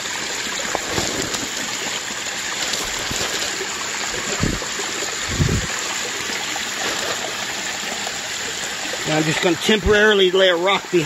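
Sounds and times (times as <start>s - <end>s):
water running over rocks: 0.0s - 11.0s
dull low thumps: 4.3s - 4.6s, 5.3s - 5.7s.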